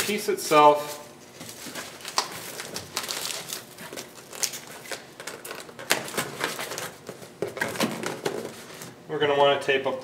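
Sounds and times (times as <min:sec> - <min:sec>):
packing peanuts rustling: 0:00.0 - 0:07.0.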